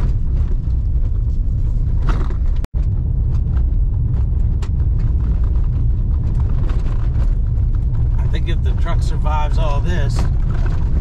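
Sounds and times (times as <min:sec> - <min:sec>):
knocks and rattles from bumps: 0:00.0 - 0:08.7
truck engine and tyres rumbling: 0:00.0 - 0:11.0.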